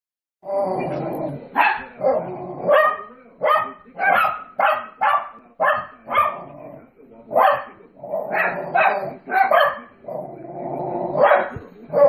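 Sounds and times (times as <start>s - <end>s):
small dogs barking: 1.5s - 6.6s, 7.3s - 10.2s, 11.1s - 12.0s.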